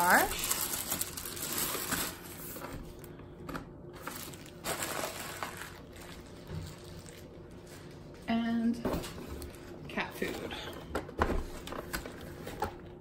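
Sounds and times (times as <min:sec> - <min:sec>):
plastic packaging rustling: 0:00.0 - 0:08.1.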